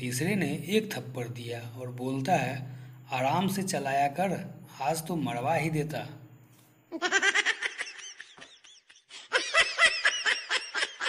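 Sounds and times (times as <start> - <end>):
canned laughter: 7.0 - 11.0.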